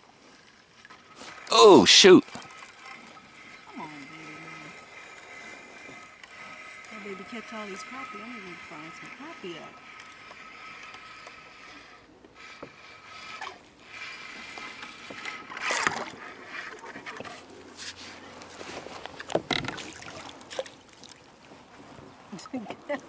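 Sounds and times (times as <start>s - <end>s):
gear knocking against kayak: 19.0s - 20.6s.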